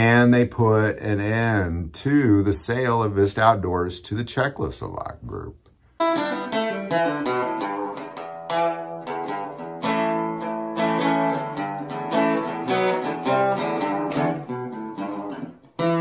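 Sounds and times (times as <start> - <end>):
acoustic guitar plucking melody: 5.9 - 16.0.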